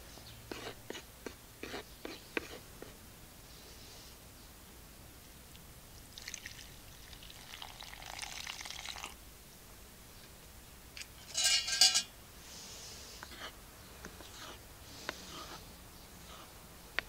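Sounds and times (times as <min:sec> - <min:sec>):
water trickling into flour: 0:06.0 - 0:09.2.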